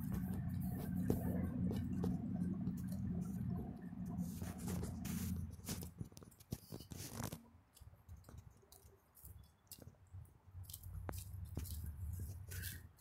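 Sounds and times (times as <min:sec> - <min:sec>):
low rumble: 0:00.0 - 0:06.0.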